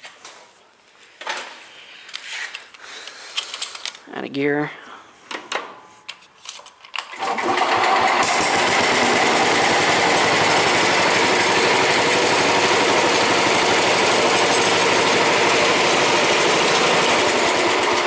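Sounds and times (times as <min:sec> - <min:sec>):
garden tractor engine running: 0:07.1 - 0:18.0.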